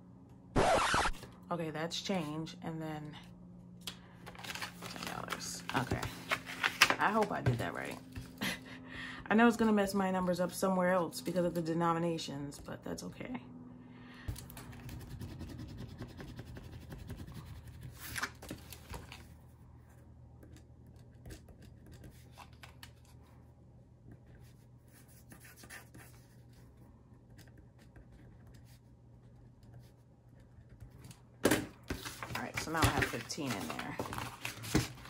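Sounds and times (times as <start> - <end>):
pen scratching on paper: 14.9 - 17.9, 24.4 - 26.6.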